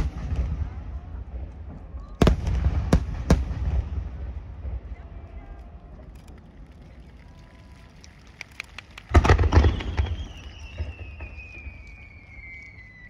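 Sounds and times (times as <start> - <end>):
firework booms and bangs: 0.0 - 5.2, 9.0 - 12.6
firework crackling pops: 5.4 - 13.0
falling firework whistle: 9.0 - 13.0.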